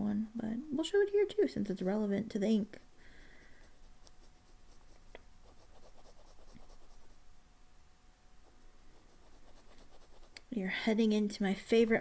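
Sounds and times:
pen nib scratching on paper: 0:03.3 - 0:07.2, 0:08.4 - 0:10.4.

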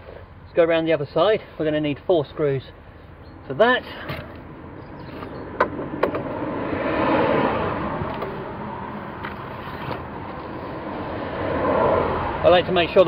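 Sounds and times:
vehicle passing on road: 0:02.8 - 0:13.0.

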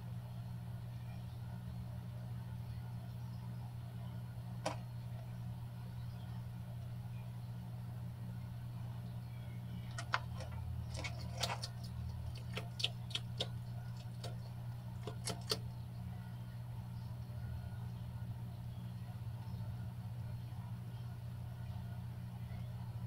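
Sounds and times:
steady low hum: 0:00.0 - 0:23.0
lizard crunching worms: 0:09.8 - 0:15.6.

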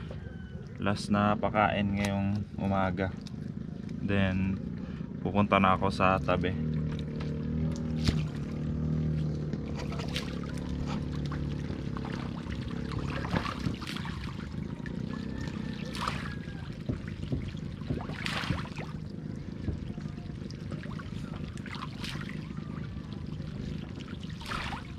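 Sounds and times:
steady low hum: 0:00.0 - 0:24.9
fish splashing water: 0:03.1 - 0:04.0, 0:06.6 - 0:24.9.

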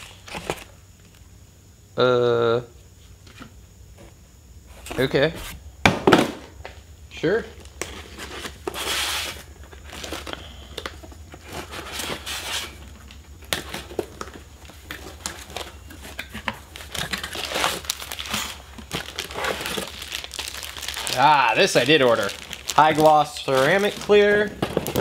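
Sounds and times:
cardboard box crinkling and tearing: 0:13.5 - 0:25.0.

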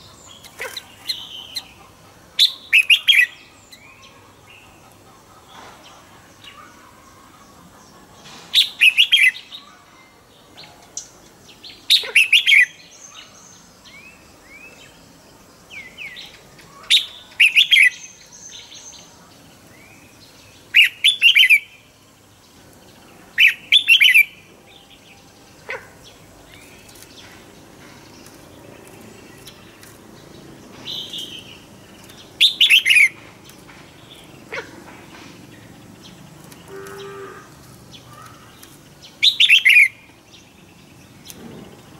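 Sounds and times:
bulbul singing: 0:23.4 - 0:41.9.

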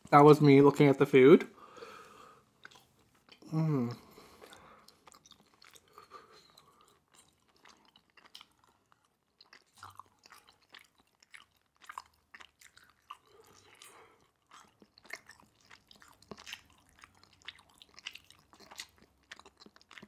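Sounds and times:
wet chewing: 0:02.1 - 0:20.0
voiced mouth sound: 0:03.4 - 0:04.2.

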